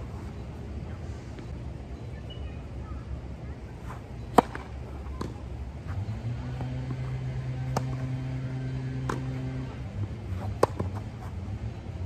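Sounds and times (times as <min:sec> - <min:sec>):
steady low hum: 0:00.0 - 0:12.0
tennis ball bouncing: 0:03.9 - 0:11.4
tennis racket hitting ball: 0:04.3 - 0:05.4, 0:06.5 - 0:09.7, 0:10.3 - 0:11.1.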